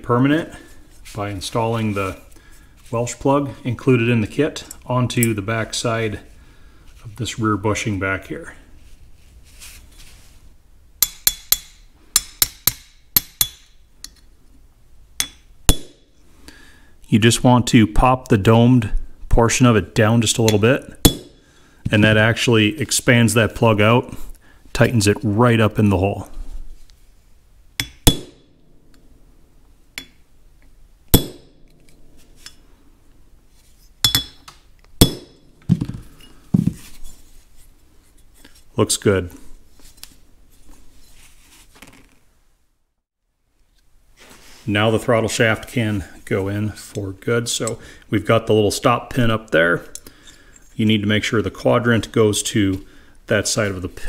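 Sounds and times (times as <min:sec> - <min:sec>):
hammer tapping metal punch: 0:11.0 - 0:14.2, 0:20.5 - 0:21.4, 0:27.8 - 0:28.4, 0:34.0 - 0:36.0.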